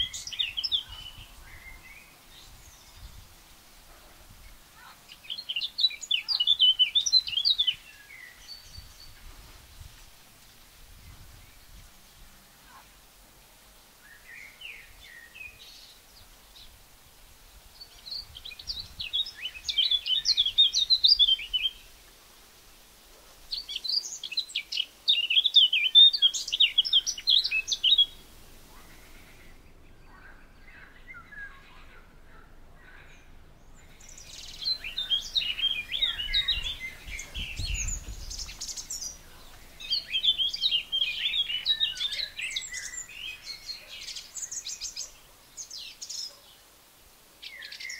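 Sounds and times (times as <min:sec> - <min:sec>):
bird warbling song: 0:00.0 - 0:10.0, 0:17.8 - 0:22.0, 0:23.4 - 0:46.6, 0:47.4 - 0:47.9.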